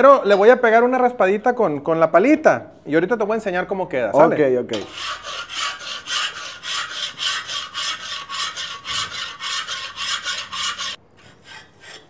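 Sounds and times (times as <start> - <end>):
metal spatula scraping rust: 4.7 - 12.0.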